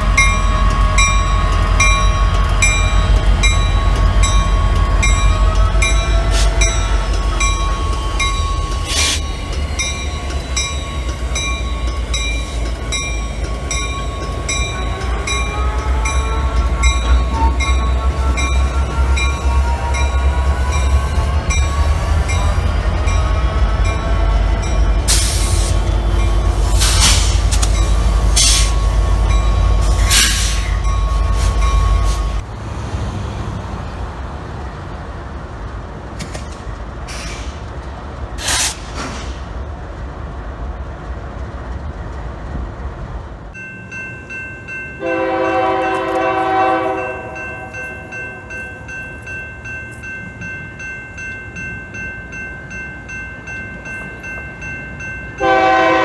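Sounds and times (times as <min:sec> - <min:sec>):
steady high ringing: 0:00.0 - 0:26.7
diesel locomotives rumbling: 0:00.0 - 0:56.0
distant train horn chord: 0:45.0 - 0:48.2, 0:55.4 - 0:56.0.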